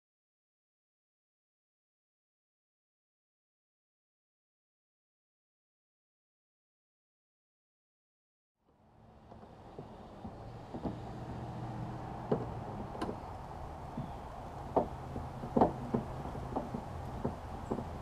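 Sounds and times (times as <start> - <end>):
knocks on plastic hull: 9.2 - 13.2, 13.9 - 18.0.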